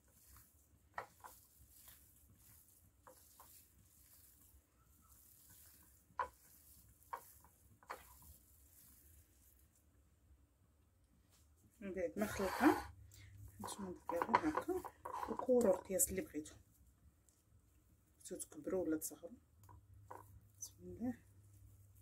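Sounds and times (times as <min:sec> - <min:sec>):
hand squishing wet mixture: 0:00.0 - 0:10.1.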